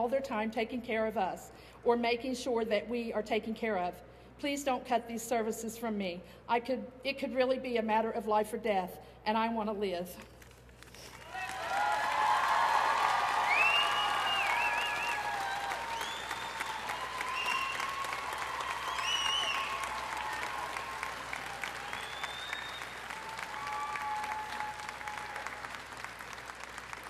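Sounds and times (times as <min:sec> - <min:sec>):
crowd applauding: 0:10.9 - 0:27.0
high whoops: 0:11.2 - 0:25.8.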